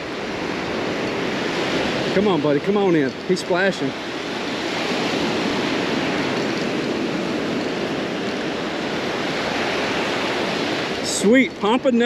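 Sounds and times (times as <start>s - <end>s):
waves breaking on beach: 0.0s - 12.0s.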